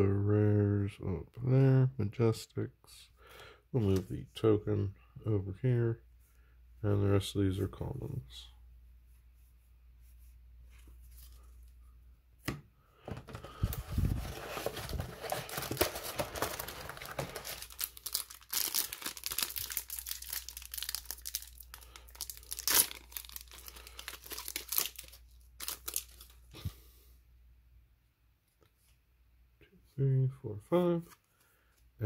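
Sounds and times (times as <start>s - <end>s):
wrapper tearing and crinkling: 13.9s - 26.5s.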